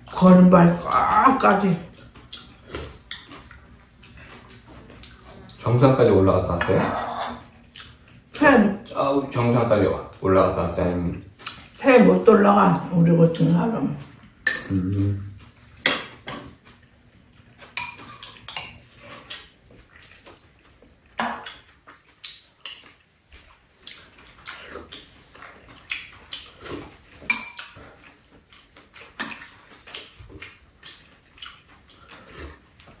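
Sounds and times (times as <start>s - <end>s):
utensils clinking on ceramic bowls: 17.7s - 18.9s, 27.2s - 27.8s.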